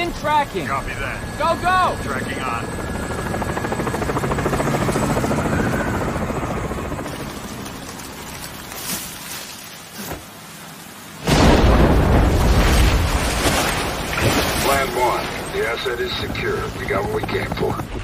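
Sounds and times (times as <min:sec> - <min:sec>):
helicopter rotor chop: 0:00.0 - 0:08.7, 0:14.1 - 0:18.0
rush of churning water: 0:09.1 - 0:15.6
heavy rain: 0:09.8 - 0:15.7.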